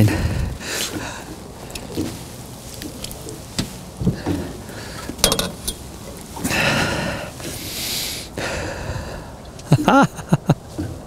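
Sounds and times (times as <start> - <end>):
man breathing out heavily: 0.0 - 1.4, 6.5 - 9.4
man sniffing: 6.5 - 8.7.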